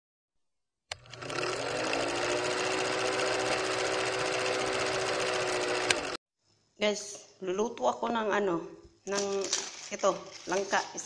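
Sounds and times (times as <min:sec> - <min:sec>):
film projector clattering: 0:00.9 - 0:06.2.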